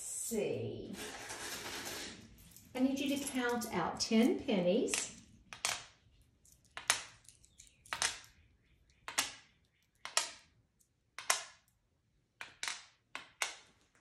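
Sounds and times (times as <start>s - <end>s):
coins clicking on a board: 4.9s - 8.3s, 9.1s - 9.4s, 10.0s - 10.5s, 11.2s - 11.7s, 12.4s - 13.7s.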